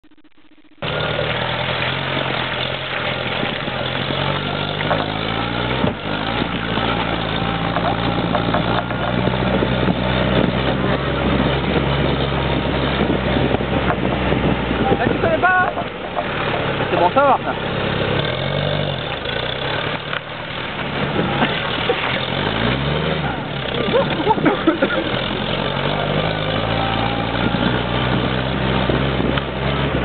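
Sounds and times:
car engine under load: 0.0 - 30.0.

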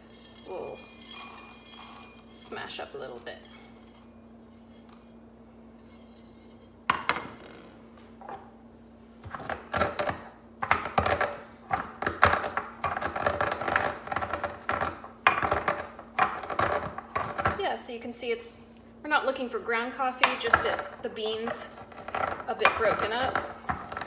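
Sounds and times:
coffee beans crunching in ceramic bowl: 20.7 - 24.0.

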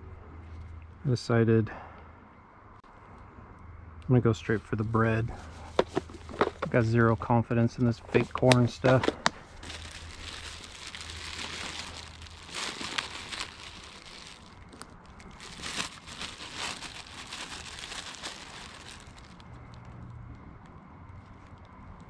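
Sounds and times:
bread bag crinkling: 5.6 - 6.9, 8.0 - 19.8.

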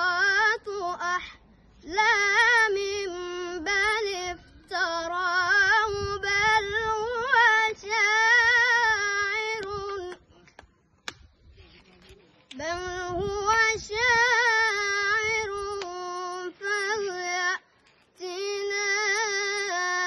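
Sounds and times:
boy chanting melodically: 0.0 - 10.6.

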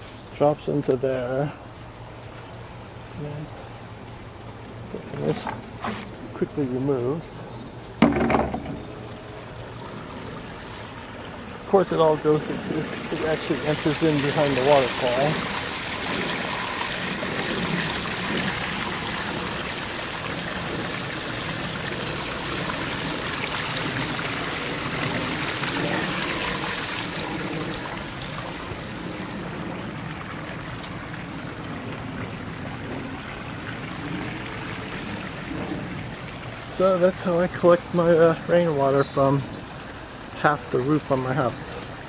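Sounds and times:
waterfall splashing over rocks: 11.5 - 42.0.

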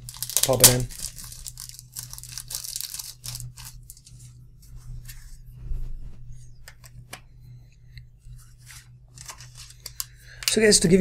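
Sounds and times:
plastic wrapping crinkling: 0.0 - 4.3, 8.6 - 10.6.

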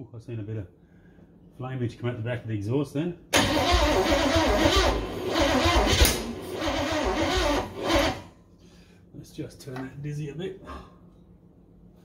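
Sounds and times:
starter motor cranking engine: 3.4 - 8.3.

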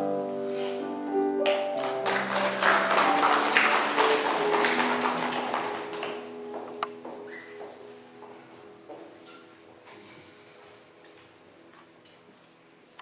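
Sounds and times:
slow soft piano music: 0.0 - 13.0
audience applauding: 1.4 - 6.4.

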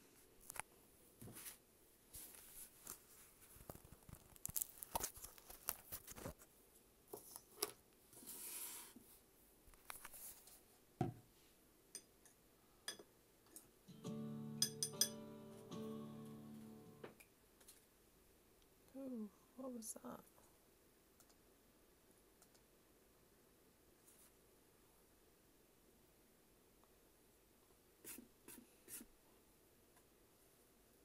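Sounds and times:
music: 13.9 - 17.2.

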